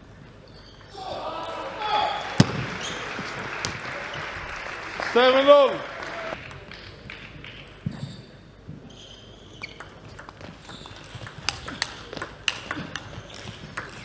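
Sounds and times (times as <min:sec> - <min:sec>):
table tennis ball clicking: 0:09.7 - 0:14.0.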